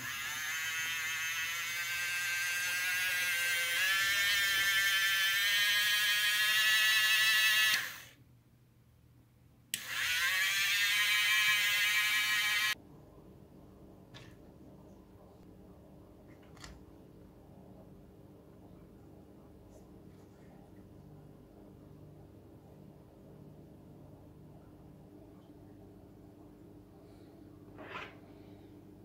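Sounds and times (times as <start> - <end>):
small electric motor whining: 0.0 - 8.2, 9.8 - 12.8.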